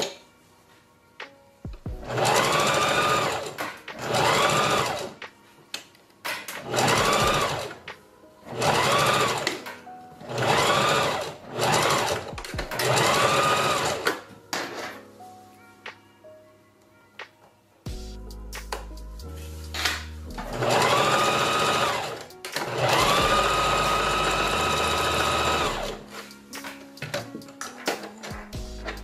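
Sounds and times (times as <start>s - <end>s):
sewing machine stitching: 2.0s - 5.2s, 6.5s - 7.8s, 8.5s - 14.2s, 19.8s - 26.0s.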